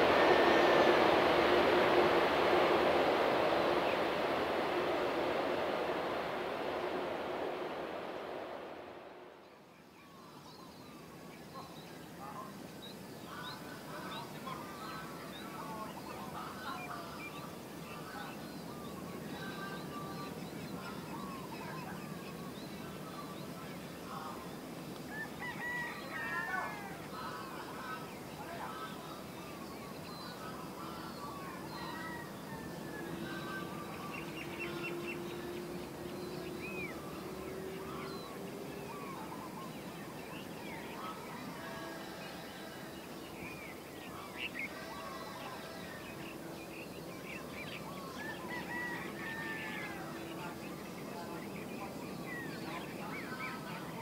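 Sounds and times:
low steady rumble: 0:00.0 - 0:09.5
distant jet engines humming: 0:00.0 - 0:09.7, 0:13.2 - 0:54.0
birds chirping: 0:00.0 - 0:54.0
birds chirping and honking: 0:30.0 - 0:54.0.

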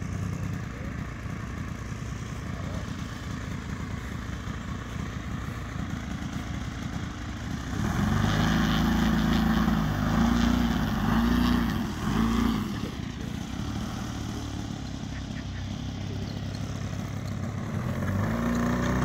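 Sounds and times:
model plane engine revving: 0:00.0 - 0:19.0.

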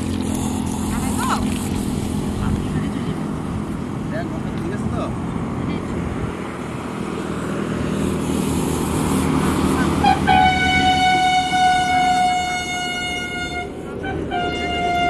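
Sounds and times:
bus engine running: 0:00.0 - 0:15.0
bus horn blasts: 0:09.8 - 0:15.0.

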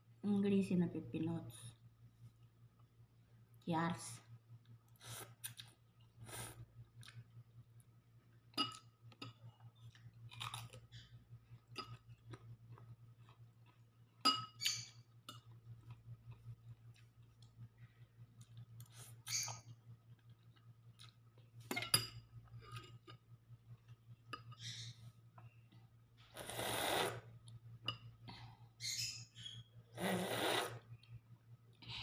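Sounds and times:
steady low hum: 0:00.0 - 0:32.0
chewing: 0:09.2 - 0:14.3, 0:18.3 - 0:21.6
slurping noodles: 0:26.4 - 0:27.3, 0:30.0 - 0:30.8.

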